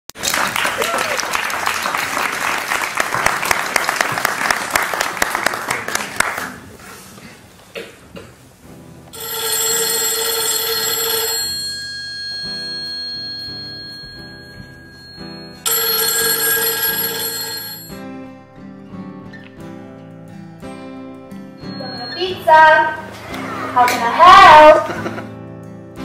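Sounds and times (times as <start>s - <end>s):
telephone bell ringing: 9.2s - 18.2s, 21.6s - 23.1s
quiet music: 17.2s - 26.0s.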